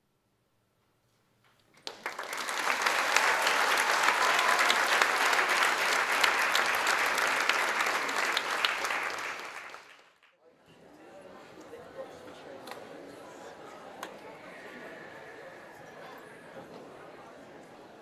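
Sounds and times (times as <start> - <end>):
audience applause: 1.8 - 10.3.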